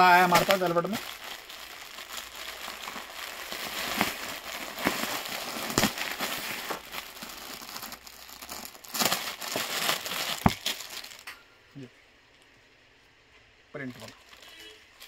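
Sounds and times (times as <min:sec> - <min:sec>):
plastic bags crinkling: 0:00.0 - 0:11.4.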